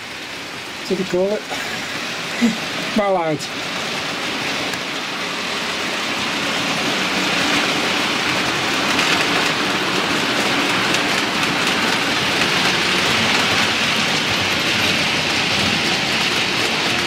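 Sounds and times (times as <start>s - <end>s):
model train wheels rattling on rails: 5.8s - 17.0s.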